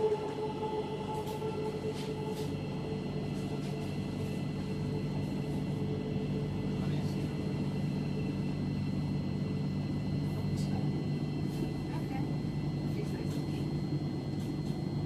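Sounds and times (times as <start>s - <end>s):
train low hum: 0.0s - 15.0s.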